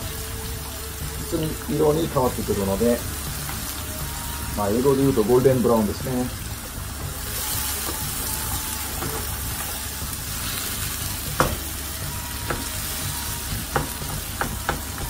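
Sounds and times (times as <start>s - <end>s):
onion sizzling in hot oil: 0.0s - 15.0s
wooden spatula knocking on pan: 9.0s - 9.3s, 11.2s - 11.7s, 12.4s - 12.8s, 13.6s - 15.0s.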